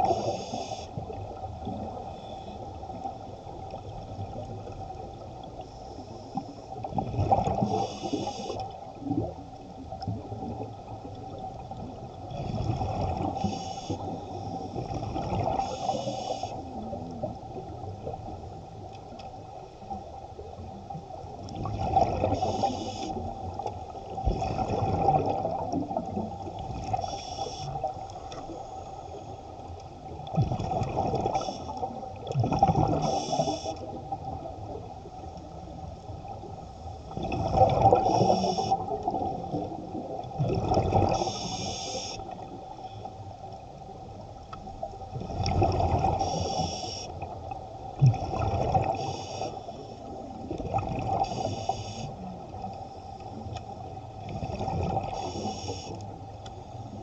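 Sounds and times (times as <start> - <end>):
steady underwater hum: 0.0 - 57.0
air bubbles gurgling underwater: 6.8 - 16.1, 21.4 - 28.4, 30.1 - 35.5, 36.1 - 41.6, 44.8 - 51.8, 54.2 - 55.5.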